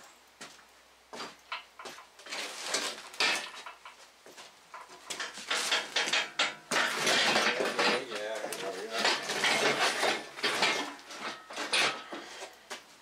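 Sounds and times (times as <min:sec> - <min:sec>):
casters rolling across floor: 0:02.2 - 0:12.8
metal engine stand clanking: 0:04.8 - 0:08.2, 0:08.9 - 0:12.2.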